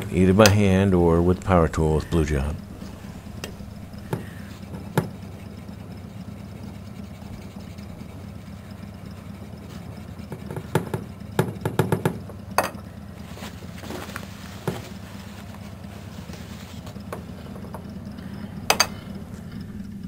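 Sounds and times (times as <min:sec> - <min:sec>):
low hum: 0:00.0 - 0:20.0
cloth rubbing metal pipe: 0:02.6 - 0:11.2, 0:13.1 - 0:19.7.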